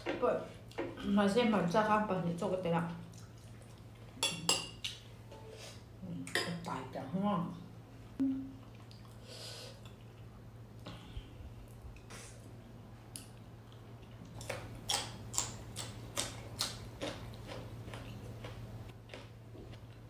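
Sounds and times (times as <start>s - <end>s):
steady low hum: 0.0s - 20.0s
wet chewing and lip smacks: 8.6s - 9.2s.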